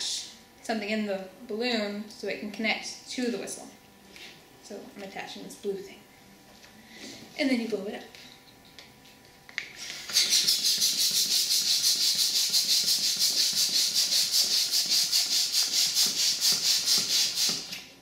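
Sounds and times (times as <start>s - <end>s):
balloon pump air hisses: 9.8s - 17.9s.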